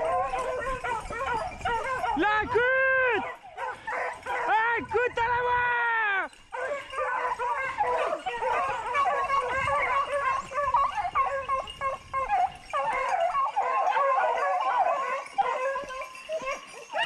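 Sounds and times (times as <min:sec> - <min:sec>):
dogs baying and howling: 0:00.0 - 0:04.9, 0:06.1 - 0:17.0.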